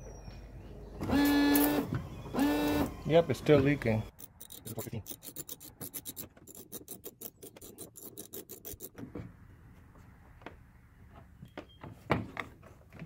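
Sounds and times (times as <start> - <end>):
hand tool clicking rapidly: 4.1 - 9.0.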